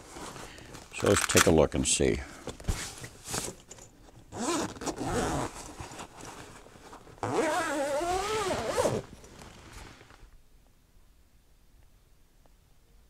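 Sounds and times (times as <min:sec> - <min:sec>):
zipper being pulled open: 0:04.3 - 0:05.9, 0:07.2 - 0:10.0.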